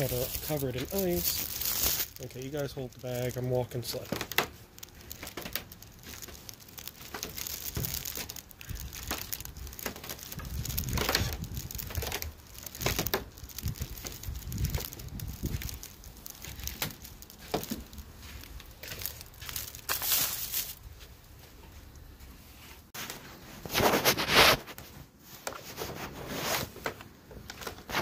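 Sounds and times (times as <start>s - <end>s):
footsteps crunching on icy stairs: 0.0s - 22.6s.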